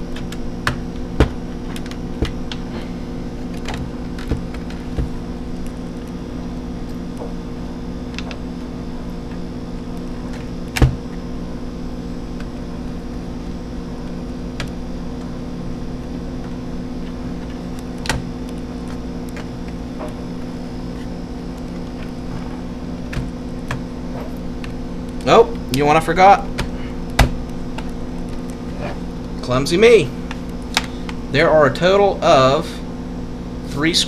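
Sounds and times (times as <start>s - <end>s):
steady droning hum: 0.0s - 34.0s.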